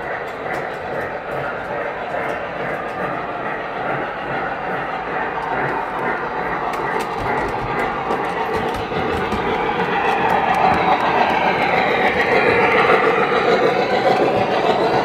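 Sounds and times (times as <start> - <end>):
steam train chuffing: 0.0 - 15.0
wheels clattering on track: 5.4 - 15.0.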